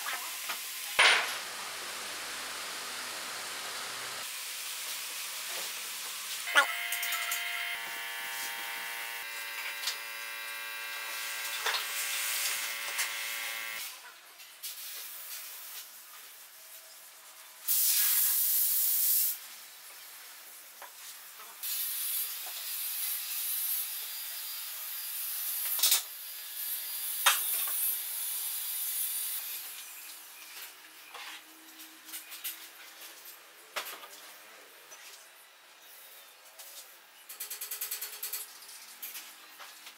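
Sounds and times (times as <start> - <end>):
scratchy hiss: 1.4 - 6.4
loud burst of hiss: 17.7 - 19.4.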